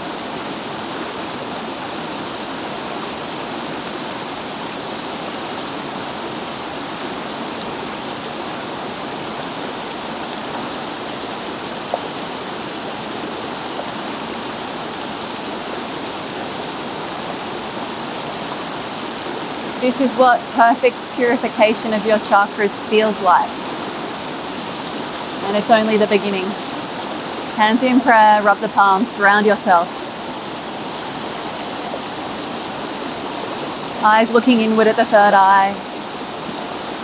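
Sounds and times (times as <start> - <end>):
river water rushing over rocks: 0.0 - 37.0.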